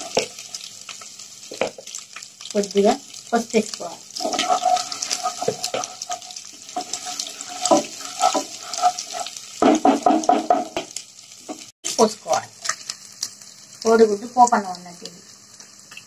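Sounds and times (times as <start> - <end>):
food sizzling in oil: 0.0 - 16.0
ladle scraping a pot: 4.2 - 9.4.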